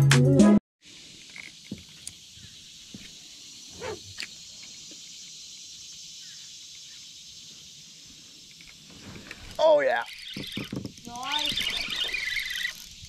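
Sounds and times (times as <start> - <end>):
insects chorus drone: 0.8 - 13.0
short squeak: 3.8 - 4.1, 10.1 - 12.8.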